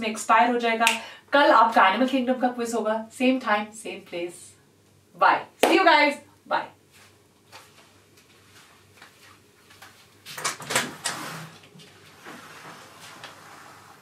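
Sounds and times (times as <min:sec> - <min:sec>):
soft rustling: 0:06.9 - 0:10.2.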